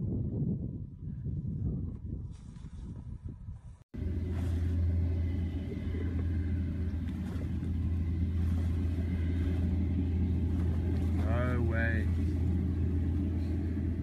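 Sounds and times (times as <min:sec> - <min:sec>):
vehicle engine idling: 0:04.0 - 0:14.0.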